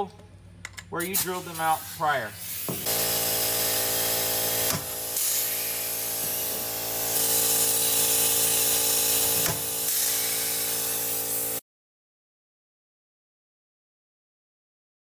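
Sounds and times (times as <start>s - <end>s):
pneumatic rivet gun air hiss: 1.2s - 11.6s.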